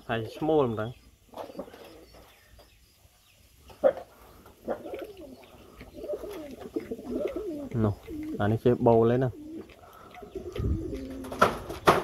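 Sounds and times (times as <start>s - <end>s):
pigeons cooing: 0.0s - 2.5s, 3.6s - 12.0s.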